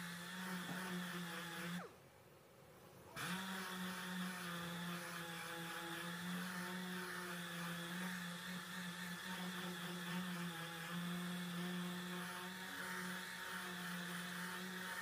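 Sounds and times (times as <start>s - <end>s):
orbital sander humming: 0.0s - 1.9s, 3.2s - 15.0s.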